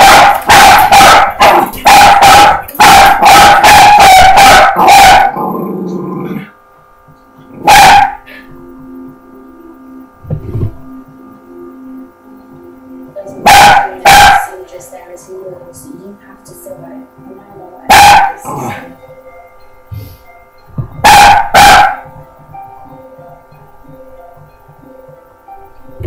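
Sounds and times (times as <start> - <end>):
dog barking: 0.0 - 5.4, 7.6 - 8.2, 13.4 - 14.6, 17.9 - 18.4, 21.0 - 22.1.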